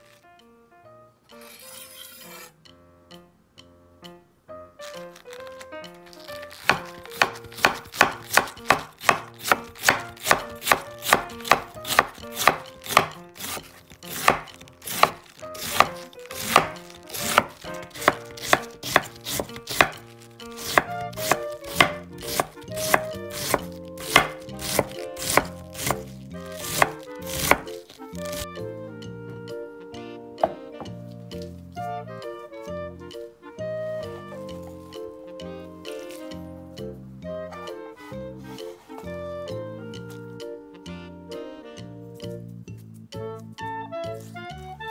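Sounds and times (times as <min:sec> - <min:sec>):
knife cutting cabbage on wooden board: 0:01.3 - 0:02.5, 0:04.8 - 0:28.5, 0:35.9 - 0:36.4.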